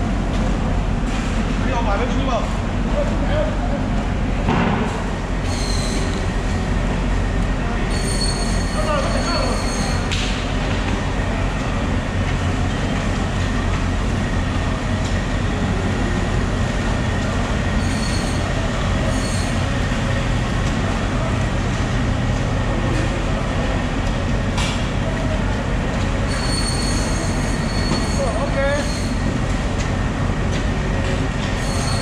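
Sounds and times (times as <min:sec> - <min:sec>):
loud rumbling noise: 0:00.0 - 0:32.0.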